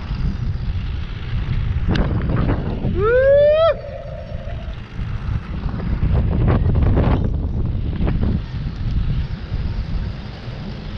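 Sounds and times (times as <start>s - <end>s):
wind buffeting microphone: 0.0s - 10.9s
rising whoop: 2.8s - 5.0s.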